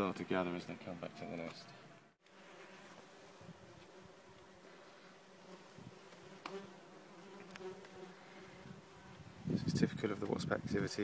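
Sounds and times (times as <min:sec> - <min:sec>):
wasps buzzing: 0:02.0 - 0:09.6.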